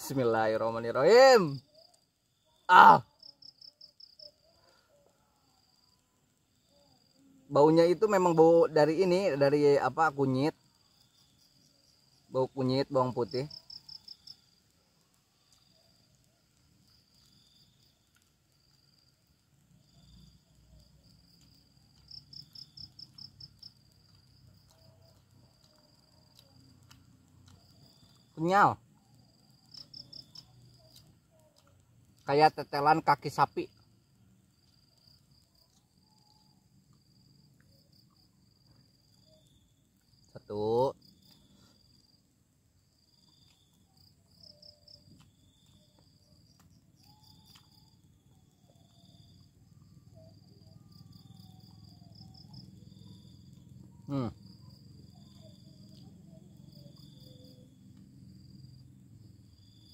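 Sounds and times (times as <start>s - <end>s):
insect chirping: 0.0s - 59.9s
faint clicks: 13.5s - 18.9s, 19.5s - 28.3s, 29.0s - 32.3s.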